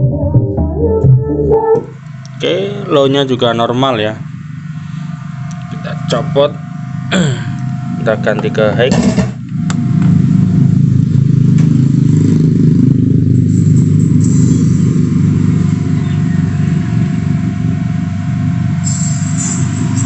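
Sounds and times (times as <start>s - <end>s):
bass-heavy music over sound system: 0.0s - 2.4s, 13.5s - 20.0s.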